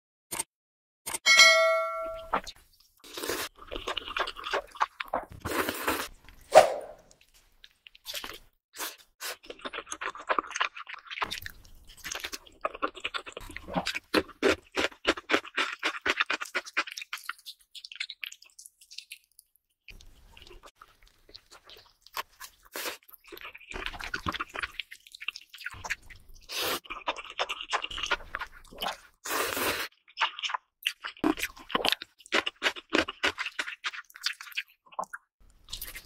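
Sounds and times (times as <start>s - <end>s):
bell-like ding: 1.3s - 2.4s
crunching and wet chewing: 2.4s - 6.5s, 7.1s - 36.0s.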